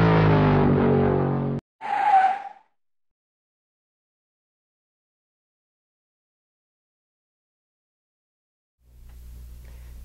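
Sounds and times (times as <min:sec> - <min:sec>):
screech sound effect: 0:01.8 - 0:02.6.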